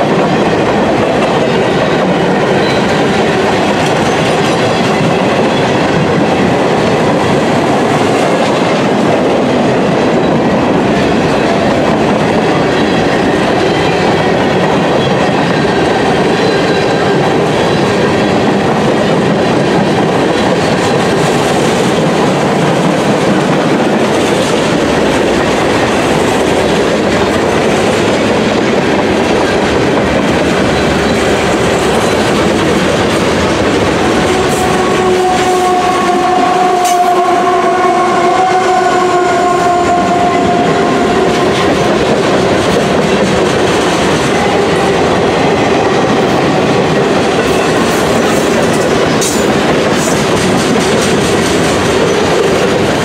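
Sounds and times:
freight train wheels rumbling on rails: 0:00.0 - 0:53.0
locomotive pitched whine: 0:24.6 - 0:42.7.

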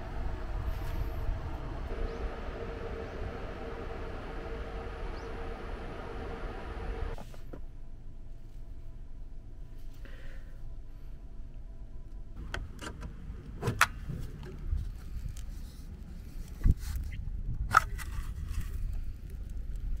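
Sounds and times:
wind rumble on microphone: 0:00.0 - 0:07.2, 0:13.9 - 0:20.0.

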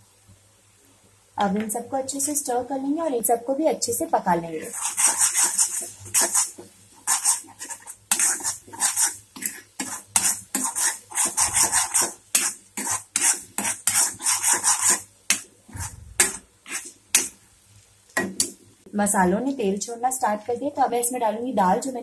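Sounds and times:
metal spatula scraping pan: 0:04.6 - 0:17.3.

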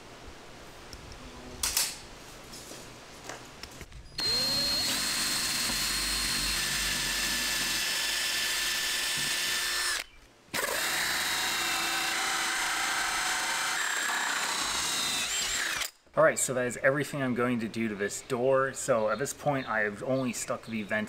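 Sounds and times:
cordless drill boring into wood: 0:04.2 - 0:16.0
hole saw cutting through door: 0:04.2 - 0:16.0.

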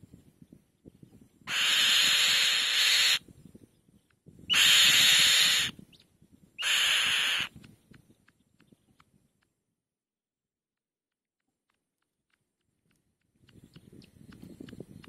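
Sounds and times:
bird harsh hissing screeches: 0:01.5 - 0:03.2, 0:04.5 - 0:05.8, 0:06.6 - 0:07.5.

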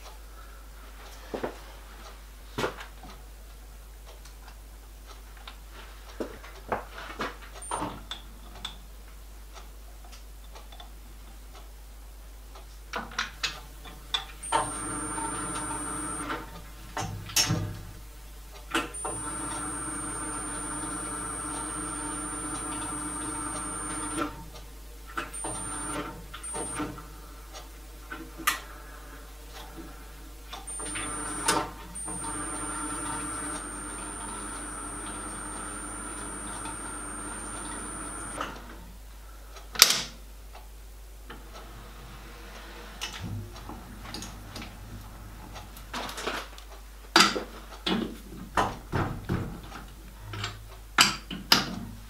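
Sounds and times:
lathe motor humming and whining: 0:14.5 - 0:16.6, 0:19.0 - 0:24.5, 0:25.4 - 0:27.0, 0:30.7 - 0:38.7.

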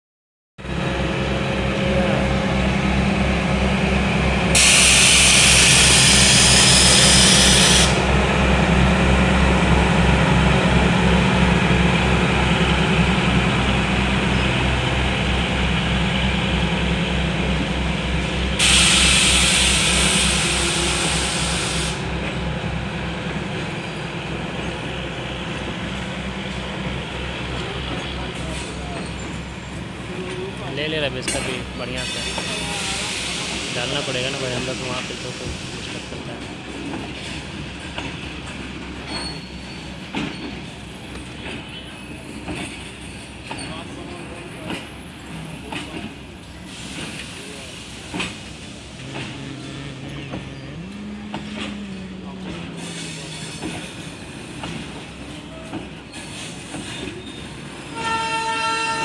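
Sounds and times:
freight train rolling: 0:00.6 - 0:59.0
train horn blasts: 0:57.9 - 0:59.0.

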